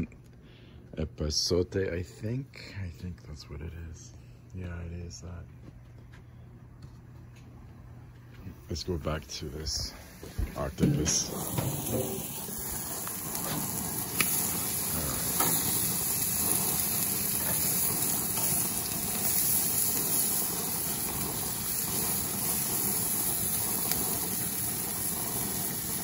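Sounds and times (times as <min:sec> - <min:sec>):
food sizzling on a grill: 0:10.8 - 0:26.0.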